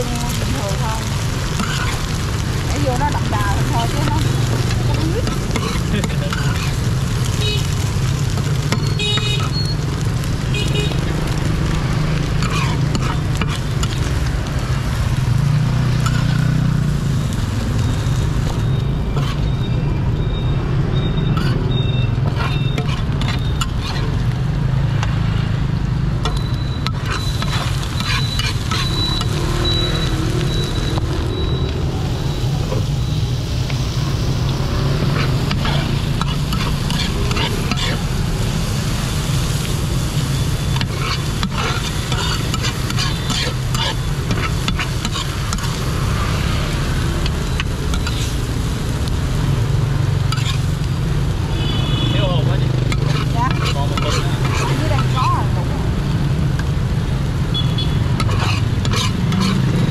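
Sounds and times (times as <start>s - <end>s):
oil sizzling in a pan: 0.0s - 59.9s
metal spatula scraping a pan: 0.2s - 9.7s, 12.4s - 14.1s, 16.0s - 16.5s, 19.1s - 19.6s, 21.3s - 24.3s, 26.3s - 29.4s, 34.9s - 38.3s, 40.6s - 46.0s, 47.6s - 48.4s, 50.3s - 50.7s, 51.7s - 55.5s, 58.2s - 59.9s.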